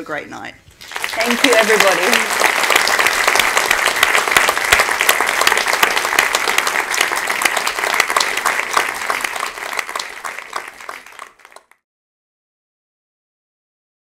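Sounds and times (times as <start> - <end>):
audience applauding: 0.8 - 11.8.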